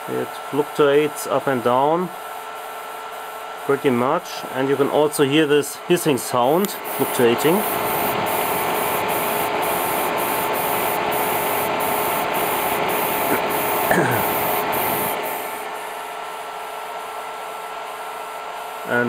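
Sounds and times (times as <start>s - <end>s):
power supply pulsing hiss: 6.3s - 17.2s.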